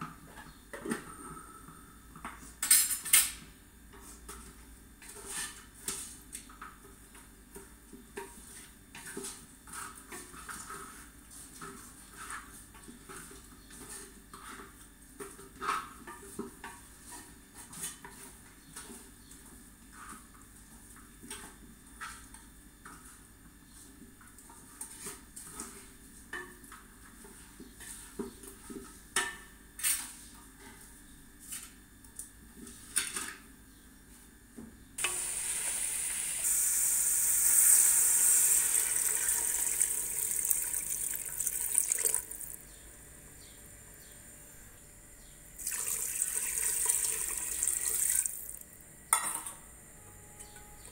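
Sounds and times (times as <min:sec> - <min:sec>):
water pouring into pot: 0:35.0 - 0:42.6, 0:45.6 - 0:48.6
tap running: 0:37.4 - 0:42.6, 0:45.6 - 0:48.6.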